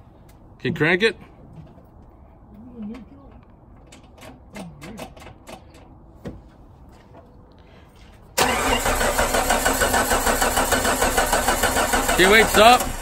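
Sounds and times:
engine cranking without starting: 8.4 - 13.0.

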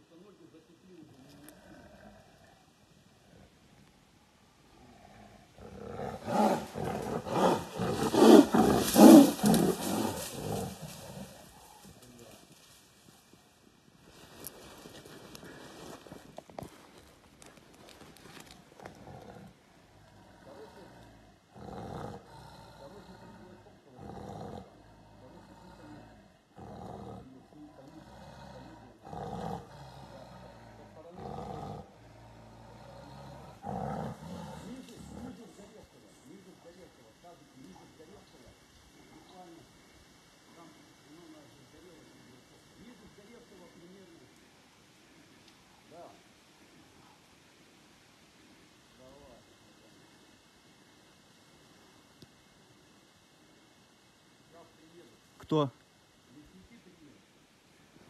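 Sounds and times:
tiger roaring: 1.0 - 3.9, 4.5 - 12.4, 18.4 - 35.9.

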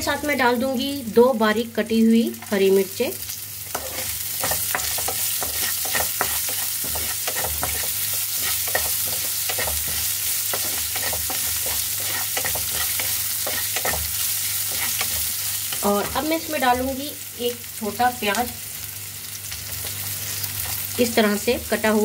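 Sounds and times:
spices sizzling in hot oil: 0.0 - 22.0
spatula scraping and knocking pan: 3.7 - 16.3.

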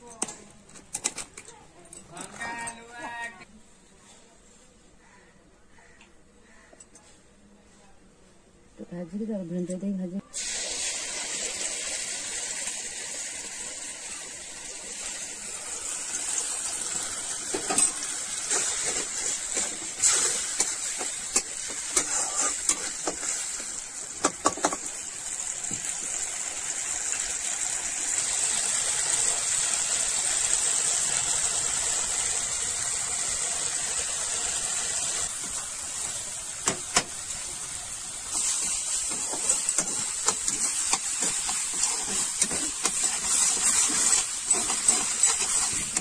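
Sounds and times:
paste sizzling in hot oil: 10.3 - 46.0
metal spatula scraping pan: 17.5 - 23.5, 38.3 - 46.0.

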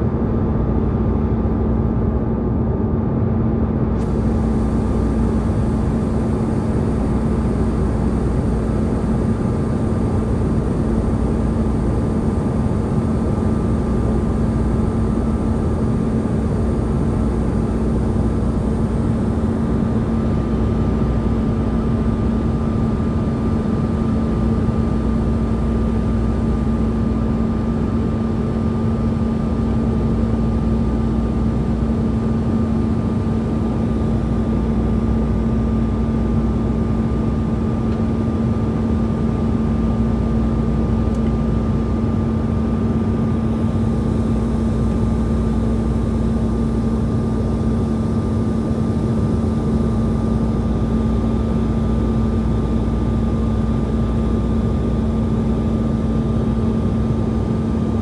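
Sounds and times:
constant low hum: 0.0 - 58.0
jet airliner cabin noise: 4.0 - 25.3
faint high whine: 4.0 - 58.0.

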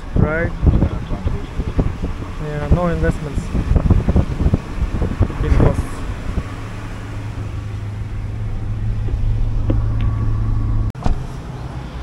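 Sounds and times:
car engine and tyre hum: 0.0 - 12.0
outdoor ambience: 5.2 - 12.0.

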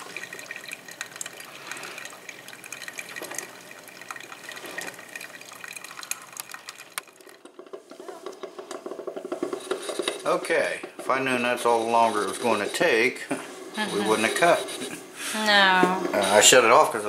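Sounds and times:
coffee trickling into mug: 0.0 - 10.2
coffee maker water gurgling: 0.0 - 12.7.

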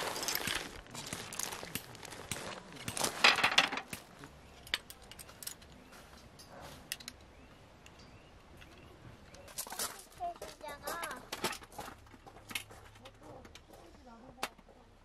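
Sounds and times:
footsteps crunching on gravel: 0.0 - 3.3.

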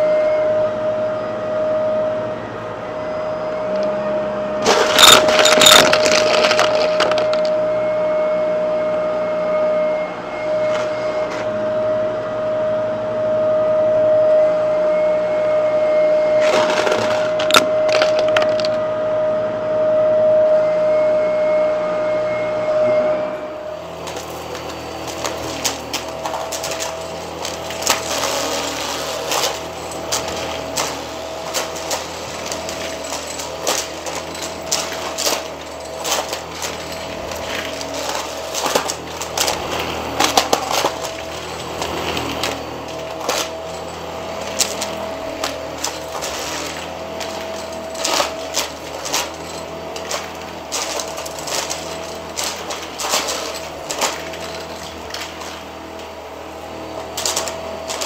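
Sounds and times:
vacuum cleaner humming: 0.0 - 58.0
coins clinking in vacuum: 4.6 - 7.6, 16.4 - 18.8, 24.0 - 56.1, 56.7 - 58.0.

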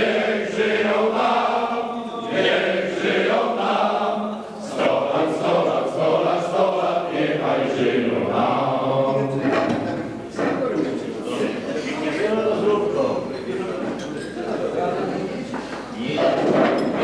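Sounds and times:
men singing in chorus: 0.0 - 10.0.

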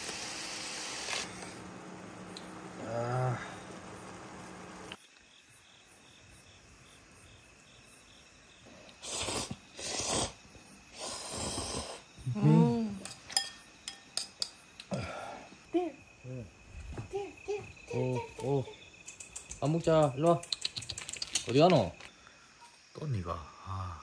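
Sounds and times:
crickets chirping: 1.3 - 24.0
person humming: 2.8 - 3.6, 12.2 - 13.1
person slurping noodles: 9.0 - 10.4, 11.0 - 12.6.

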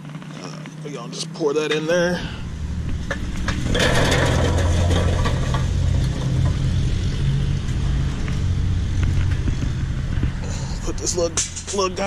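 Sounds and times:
charcoal tumbling and clattering: 2.9 - 8.2.

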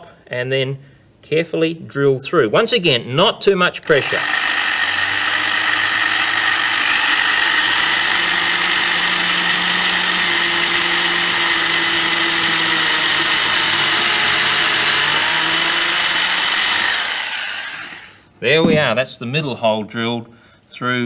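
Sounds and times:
electric drill boring through wood: 3.8 - 18.2.

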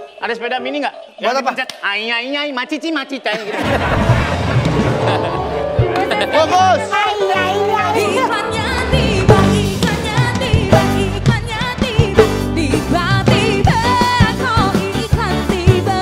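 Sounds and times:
pop song with singing and band: 5.9 - 16.0.

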